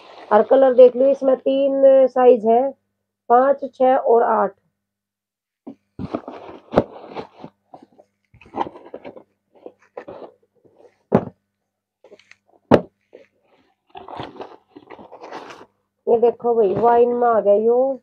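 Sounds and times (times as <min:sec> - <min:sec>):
paper rustling and crinkling: 0:00.0 - 0:01.0, 0:05.7 - 0:11.3, 0:12.1 - 0:15.7
box thudding: 0:05.7 - 0:10.3, 0:11.0 - 0:11.4, 0:12.6 - 0:13.0.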